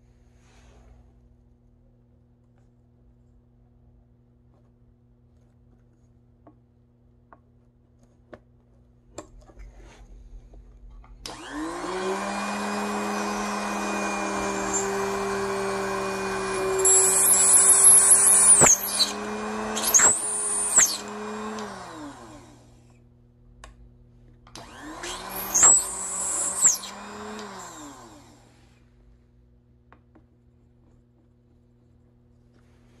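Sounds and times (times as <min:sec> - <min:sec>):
small electric drill motor whining: 0:11.3 - 0:22.7, 0:24.5 - 0:28.5.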